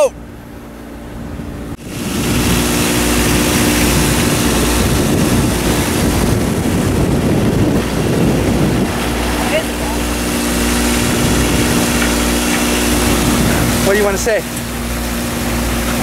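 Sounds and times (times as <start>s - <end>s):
wind and water rushing: 0.0s - 16.0s.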